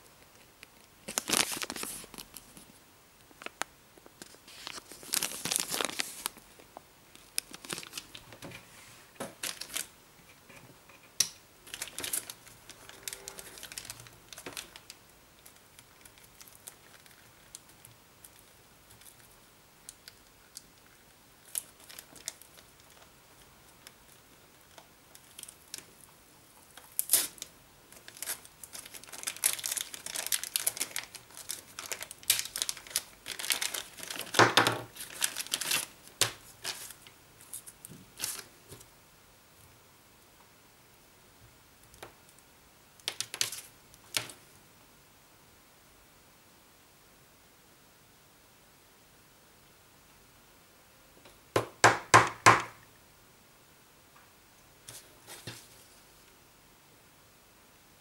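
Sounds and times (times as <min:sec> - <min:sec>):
plastic bag crinkling: 0:01.0 - 0:02.7, 0:03.3 - 0:08.4, 0:09.2 - 0:09.9, 0:11.6 - 0:26.1, 0:26.7 - 0:38.5, 0:43.0 - 0:44.4
wire tether clicks and rustles: 0:10.9 - 0:38.9, 0:43.0 - 0:44.4.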